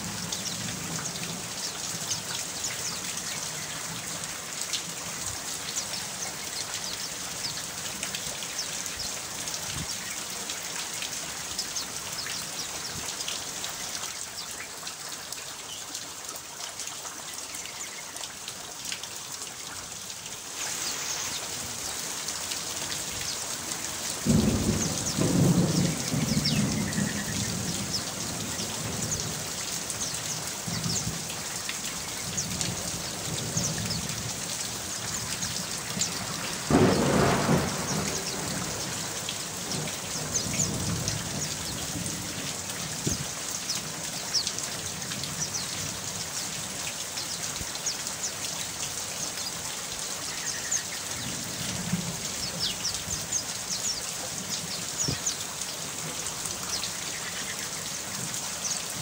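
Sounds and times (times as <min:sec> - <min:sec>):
steady rain falling: 0:00.0 - 0:59.0
deep thunder rumble: 0:24.2 - 0:28.0, 0:36.2 - 0:42.2.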